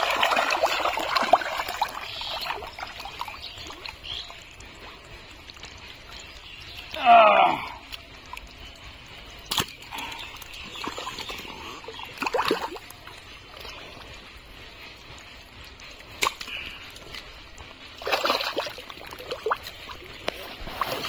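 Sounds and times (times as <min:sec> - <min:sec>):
mud sloshing: 0:00.0 - 0:21.0.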